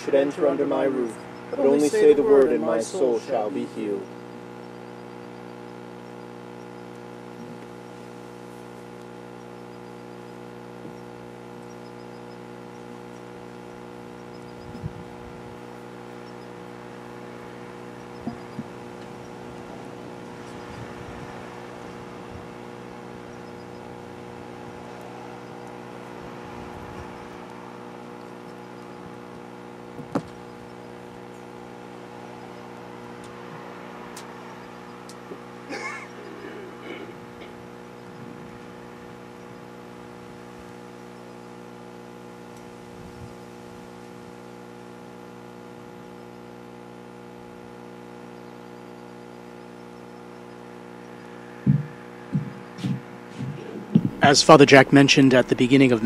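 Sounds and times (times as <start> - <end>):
steady hum: 0.0 - 56.0
short knocks: 51.6 - 54.2.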